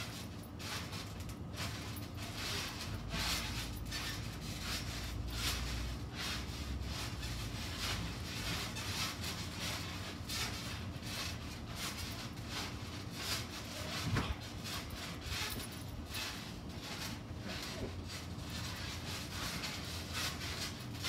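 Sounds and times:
trampoline springs creaking: 0.0 - 21.0.

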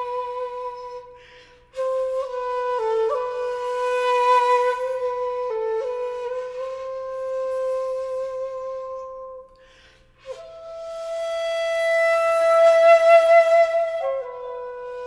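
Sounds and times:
slow solo flute: 0.0 - 15.0
audible breath: 1.2 - 1.8, 9.6 - 10.3.

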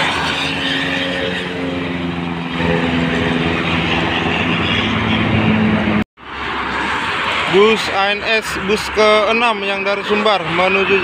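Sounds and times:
diesel bus engine drone: 0.0 - 11.0
tyre and highway traffic noise: 0.0 - 11.0.

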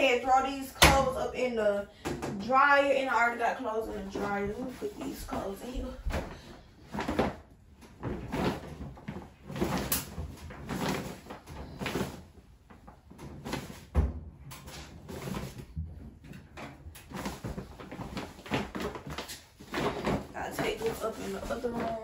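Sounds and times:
fabric rustling: 3.9 - 13.9, 17.0 - 22.0.

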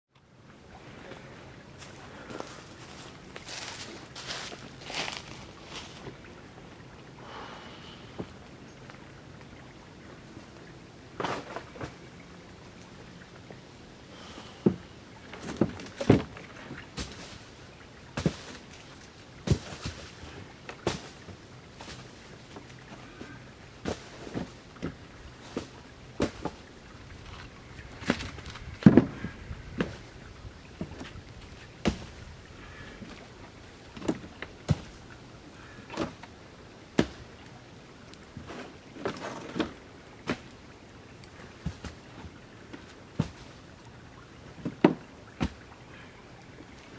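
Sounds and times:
firewood logs knocking: 28.0 - 30.0.

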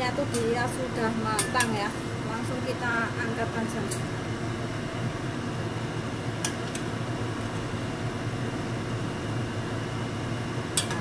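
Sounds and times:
steady whirring hum: 0.0 - 11.0.

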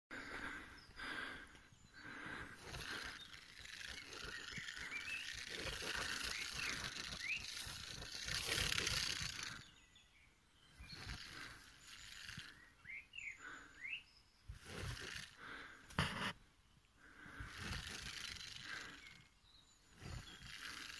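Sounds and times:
birds chirping: 0.1 - 20.9
porcupine rattling quills: 2.0 - 9.8, 10.8 - 12.6, 14.5 - 15.8, 17.1 - 19.3, 19.9 - 20.9.

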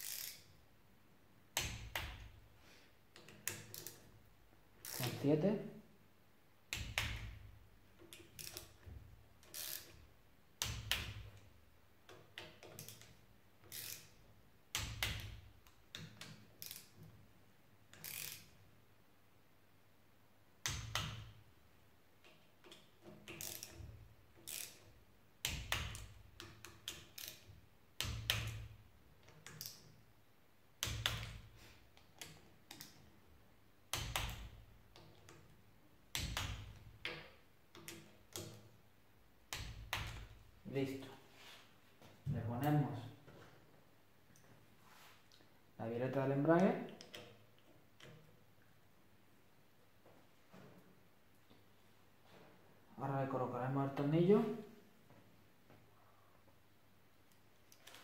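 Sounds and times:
torque wrench click: 0.0 - 0.4, 3.2 - 4.0, 4.8 - 5.2, 8.1 - 8.8, 9.4 - 10.0, 12.6 - 14.1, 16.2 - 16.9, 17.9 - 18.5, 22.6 - 28.6
torque wrench ratchet ticks: 0.0 - 0.4, 4.8 - 5.1, 9.5 - 9.9, 13.7 - 14.1, 18.0 - 18.4.

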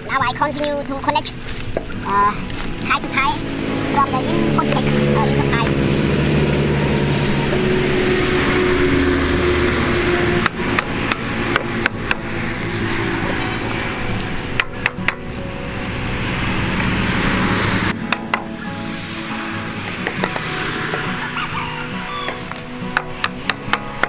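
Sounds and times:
engine drone: 0.0 - 24.0
hammer tapping plastic pipes: 10.4 - 12.2, 14.6 - 15.4, 22.9 - 24.0.

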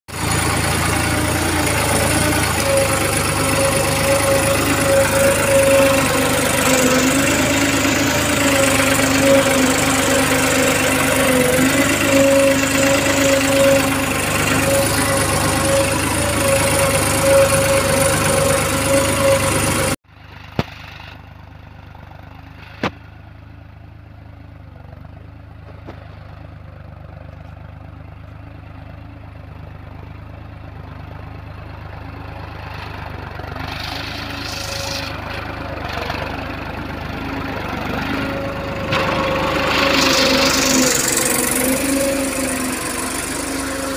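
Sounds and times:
diesel tractor engine running: 0.1 - 43.9.

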